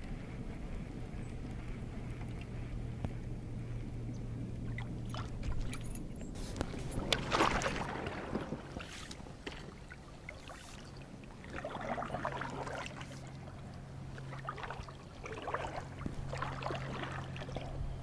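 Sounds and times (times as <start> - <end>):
kayak paddle splashing water: 4.6 - 5.8, 6.4 - 17.9.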